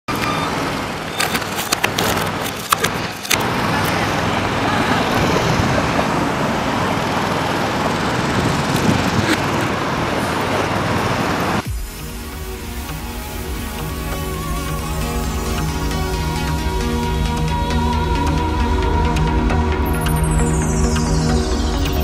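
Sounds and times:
traffic wash: 0.0s - 22.0s
bike clicks and knocks: 1.1s - 4.0s.

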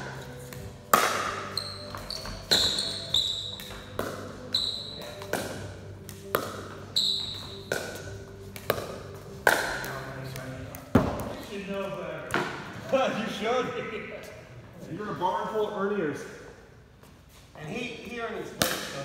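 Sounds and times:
ball bouncing on concrete: 0.4s - 11.4s, 18.6s - 18.9s
paddles striking plastic ball: 7.6s - 11.3s.

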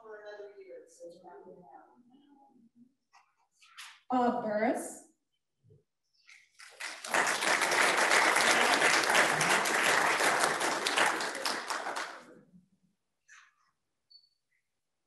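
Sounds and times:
audience applauding: 6.3s - 12.4s.

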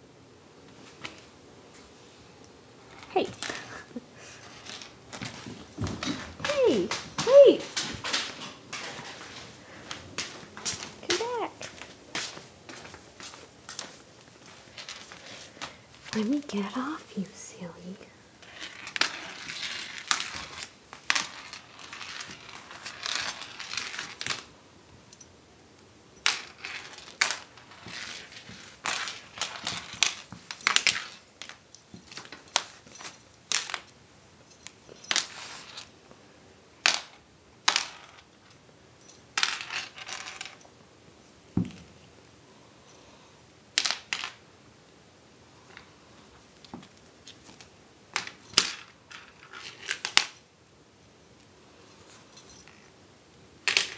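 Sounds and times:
lanyard clicking on hardwood floor: 2.9s - 14.0s, 26.2s - 35.9s.

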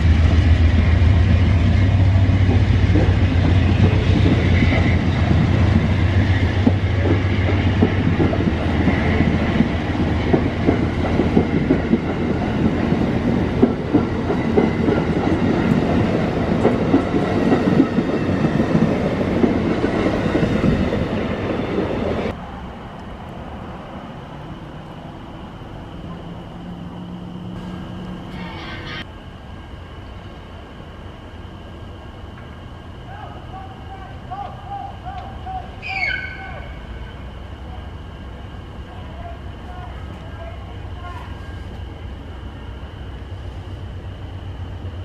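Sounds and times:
train wheels clattering on rails: 0.0s - 22.4s.

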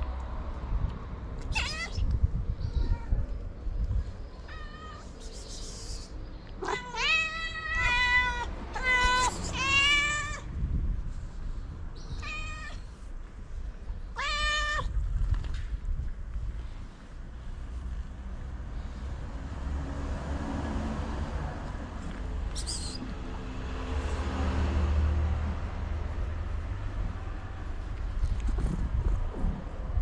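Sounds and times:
cat meowing loudly: 1.4s - 3.4s, 4.4s - 5.2s, 6.6s - 10.5s, 12.2s - 13.0s, 14.1s - 15.0s.

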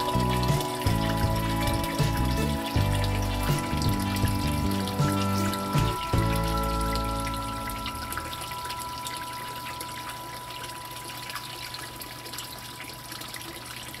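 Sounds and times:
background music: 0.0s - 10.4s
faint steady high tone: 0.0s - 13.0s
water dripping: 0.0s - 14.0s
water trickling and splashing: 0.0s - 14.0s.

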